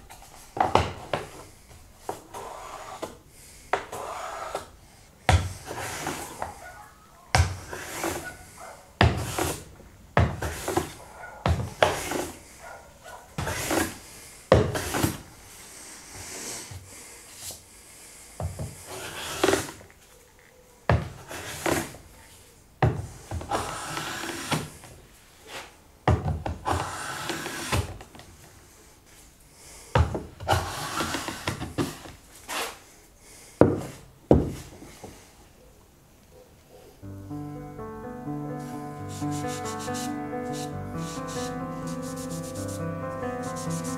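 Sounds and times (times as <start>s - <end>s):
hand plane rasping shaving: 5.6s - 6.4s, 7.6s - 8.2s, 18.9s - 19.7s, 23.5s - 24.6s, 26.7s - 27.9s, 30.5s - 31.6s, 39.2s - 43.9s.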